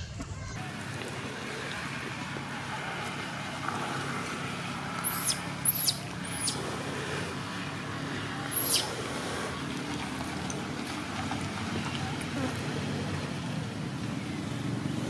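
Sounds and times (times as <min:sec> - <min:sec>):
baby monkey distress squeals: 0:05.0 - 0:06.6, 0:08.5 - 0:08.9.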